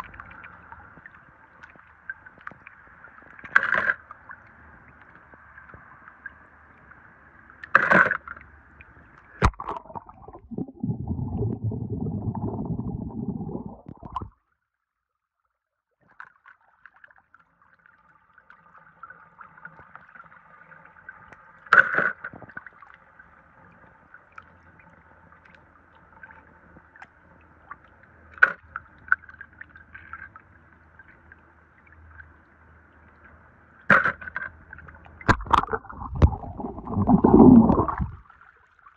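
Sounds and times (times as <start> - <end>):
water gurgling and trickling: 0.0 - 14.4, 27.6 - 38.9.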